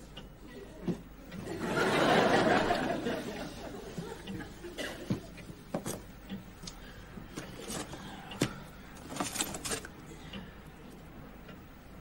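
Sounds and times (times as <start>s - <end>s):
packing a suitcase: 7.4s - 9.9s.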